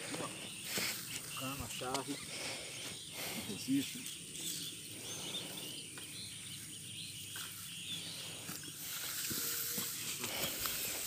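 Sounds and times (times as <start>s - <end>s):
bird chirps: 0.0s - 11.0s
insects hissing: 0.0s - 11.0s
hoses dragged through dry grass: 7.4s - 11.0s.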